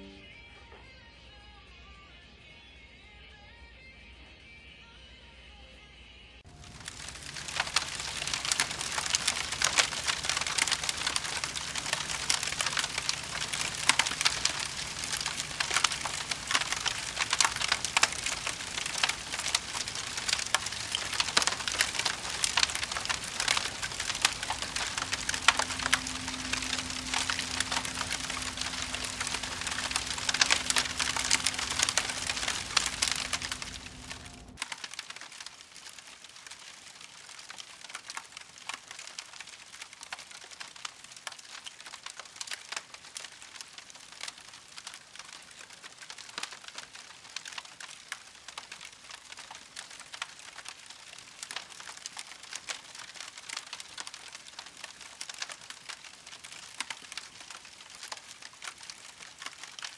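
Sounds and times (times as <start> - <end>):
fire crackling and popping: 6.5 - 59.9
steady low hum: 9.3 - 34.6.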